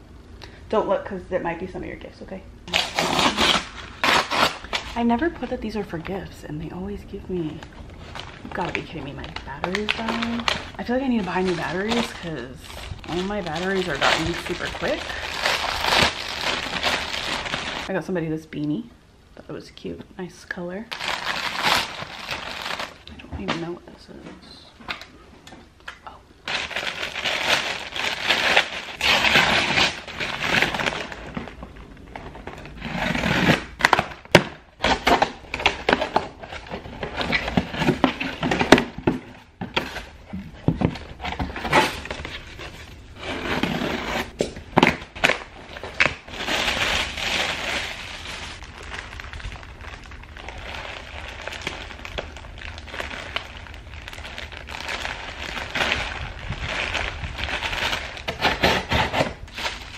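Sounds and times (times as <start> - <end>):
packaging tearing: 2.7 - 5.0, 7.9 - 17.9, 20.9 - 23.0, 26.4 - 31.6, 41.3 - 59.9
plastic and paper crinkling: 7.3 - 17.9, 20.9 - 25.0, 26.4 - 59.9.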